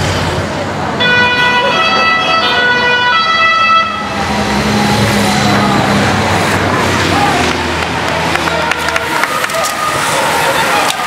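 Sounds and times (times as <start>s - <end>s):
vehicles passing close by: 0.0s - 11.0s
two-tone siren: 1.0s - 5.7s.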